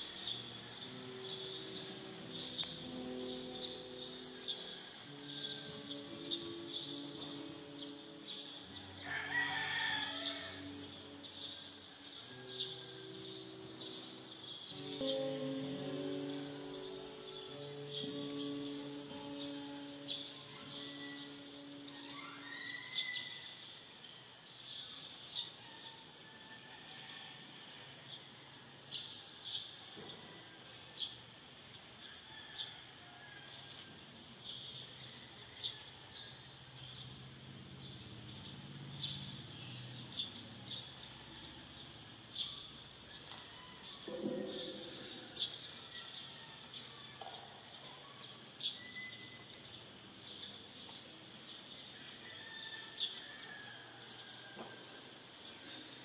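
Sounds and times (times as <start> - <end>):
bird chirps: 48.7 - 50.6.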